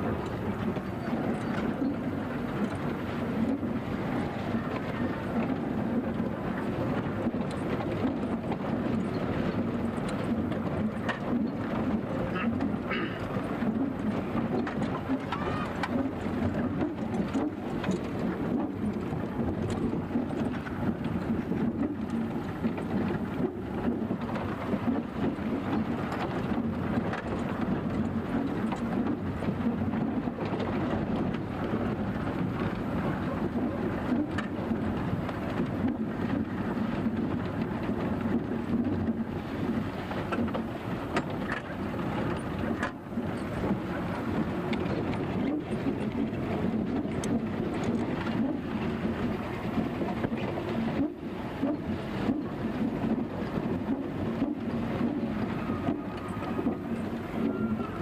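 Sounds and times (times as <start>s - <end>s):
vehicle engine and road noise: 0.0s - 58.0s.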